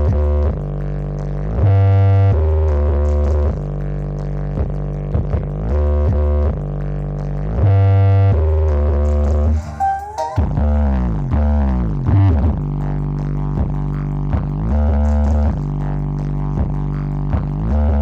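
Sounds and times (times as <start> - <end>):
loud electronic music: 9.3 - 11.2.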